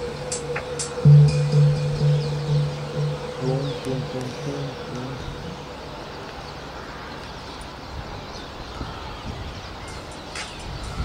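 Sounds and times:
starlings chirping and whistling: 0:00.0 - 0:06.8
steady background noise: 0:00.0 - 0:11.0.

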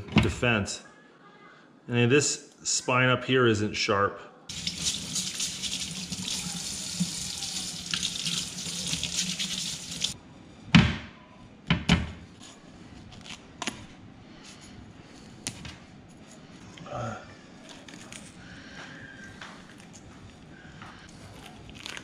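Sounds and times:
faucet water splashing in sink: 0:04.5 - 0:10.2.

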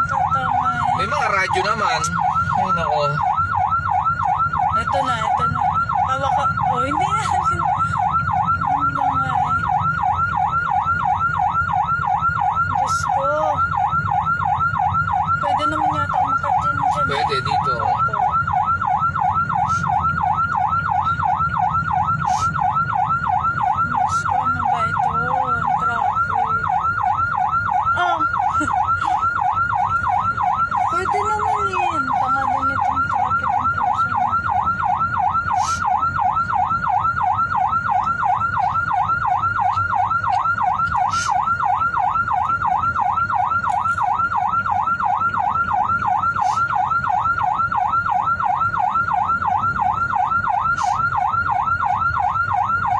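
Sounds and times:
engine and road rumble: 0:00.0 - 0:52.9
siren yelping: 0:00.0 - 0:52.9.

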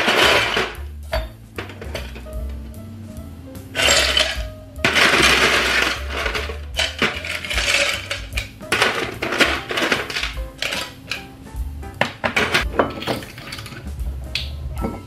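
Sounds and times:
ice cubes rattling in a glass: 0:03.8 - 0:11.0, 0:12.9 - 0:13.8.

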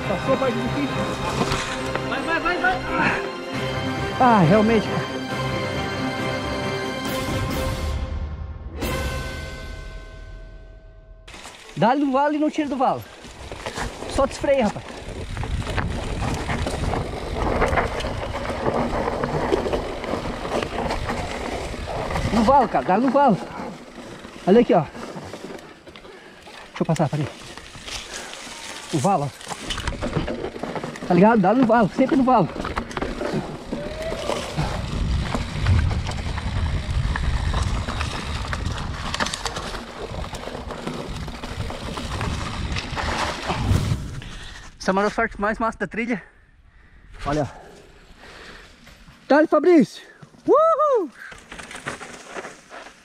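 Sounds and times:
bike tyres rumbling on dirt: 0:11.3 - 0:45.4, 0:50.5 - 0:53.0
bike frame clicks and rattles: 0:13.0 - 0:43.5
bike knocks and rattles: 0:29.1 - 0:43.7.

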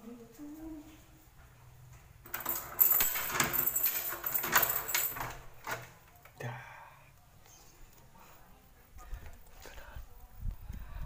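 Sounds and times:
door handle and latch rattling: 0:02.3 - 0:06.0.

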